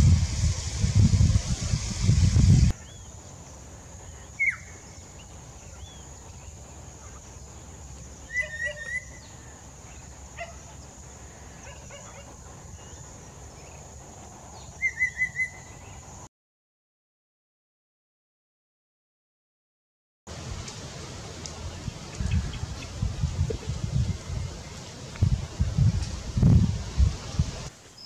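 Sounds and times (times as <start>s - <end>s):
faint steady hiss: 0.0s - 14.8s, 20.3s - 28.0s
bird singing whistled phrases: 4.4s - 4.8s, 8.2s - 9.4s, 14.8s - 15.8s.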